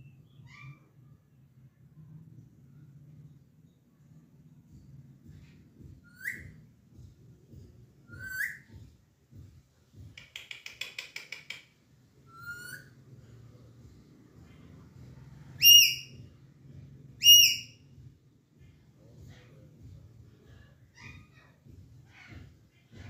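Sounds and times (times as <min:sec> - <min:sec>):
parakeet whistling: 0:06.0 - 0:06.6, 0:08.1 - 0:08.7, 0:15.6 - 0:16.1, 0:17.2 - 0:17.8
parakeet clicks: 0:10.2 - 0:11.8.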